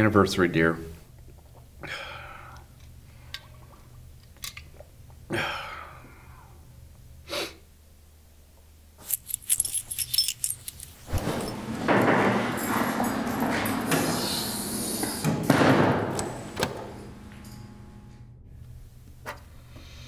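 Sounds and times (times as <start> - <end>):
keys jangling: 9.0 - 11.6.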